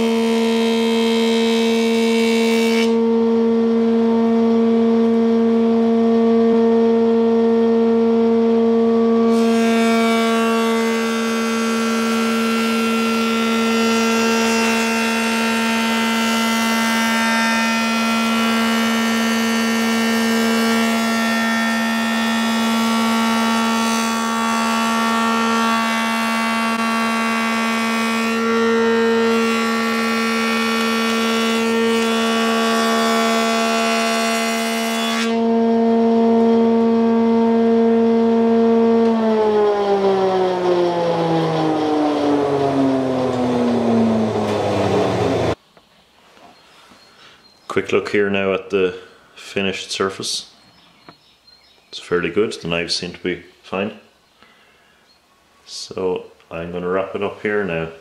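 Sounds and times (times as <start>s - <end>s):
wood being planed: 0.0s - 6.8s, 9.2s - 41.7s
planer motor hum and whine: 0.0s - 45.6s.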